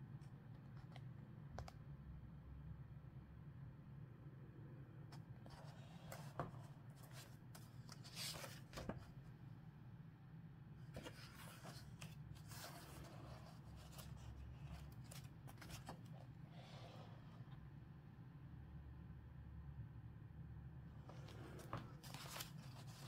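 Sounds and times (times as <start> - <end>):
faint low hum: 0.0 - 23.0
book pages rustling: 5.4 - 9.2, 10.9 - 17.0, 21.0 - 23.0.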